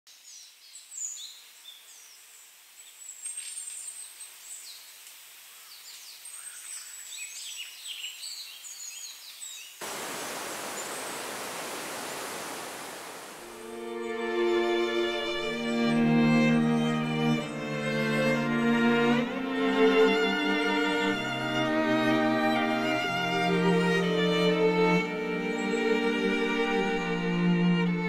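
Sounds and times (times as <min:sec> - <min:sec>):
small birds chirping: 0:00.1 - 0:13.7
waterfall rushing: 0:09.8 - 0:13.8.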